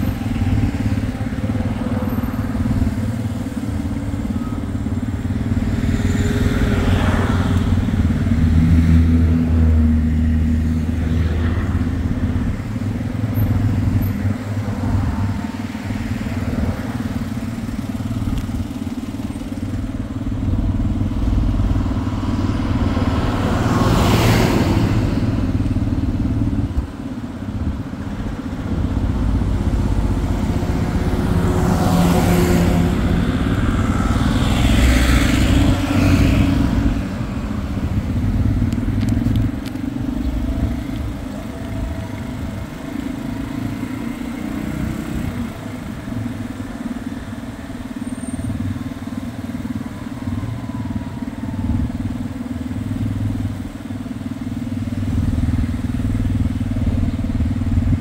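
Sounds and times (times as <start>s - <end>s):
motor vehicle rumble: 0.0s - 58.0s
vehicle passing: 28.6s - 41.2s.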